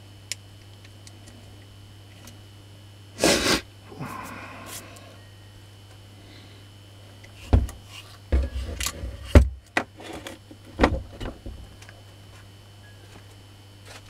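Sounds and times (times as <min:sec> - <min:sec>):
motor clunking on workbench: 0:07.5 - 0:11.6.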